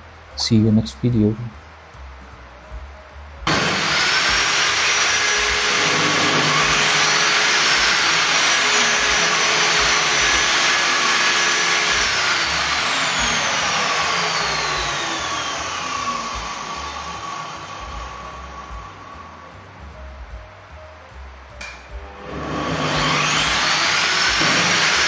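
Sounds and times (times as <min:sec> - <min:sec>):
saw winding down: 0:03.5 - 0:19.5, 0:22.0 - 0:25.0
table saw motors whining: 0:03.5 - 0:19.5, 0:22.0 - 0:25.0.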